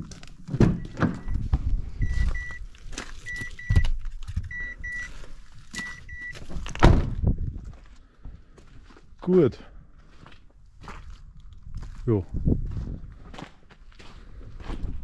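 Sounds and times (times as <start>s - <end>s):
car warning chime double beep: 0.8s - 1.4s, 2.0s - 2.6s, 3.3s - 3.9s, 4.5s - 5.1s, 5.8s - 6.4s
loud thump: 6.8s - 7.3s.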